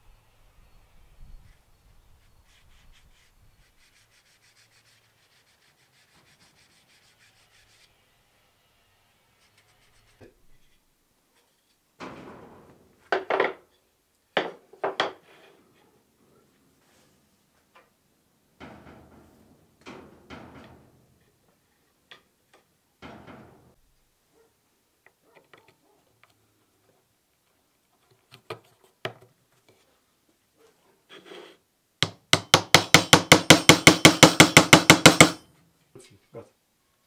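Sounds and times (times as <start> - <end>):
wooden pieces knocking and rustling: 13.0 - 13.8, 14.4 - 15.2
hammer tapping on metal: 32.0 - 35.5.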